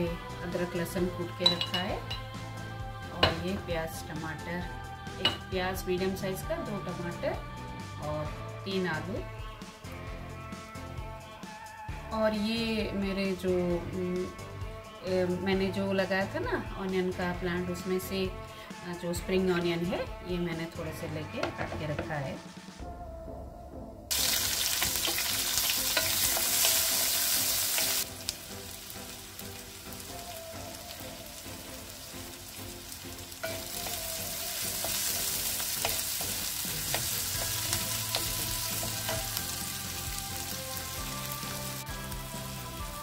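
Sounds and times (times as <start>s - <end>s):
onion sizzling in oil: 24.1s - 43.0s.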